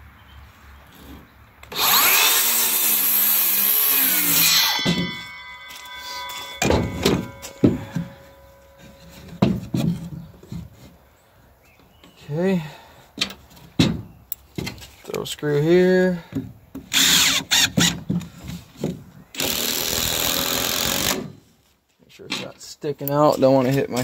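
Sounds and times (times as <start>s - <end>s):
circular saw cutting wood: 1.7s - 9.3s
saw blade ringing: 3.6s - 9.8s
sharp knocks: 4.5s - 10.2s.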